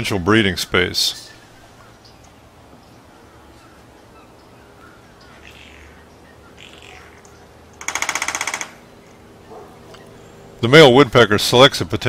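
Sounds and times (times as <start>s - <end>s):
woodpecker drumming: 3.7s - 10.6s.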